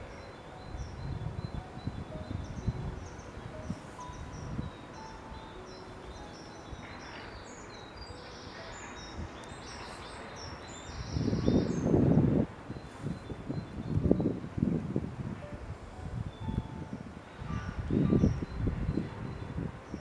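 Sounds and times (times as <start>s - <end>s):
small birds chirping: 0.0s - 14.4s
wind buffeting microphone: 0.0s - 20.0s.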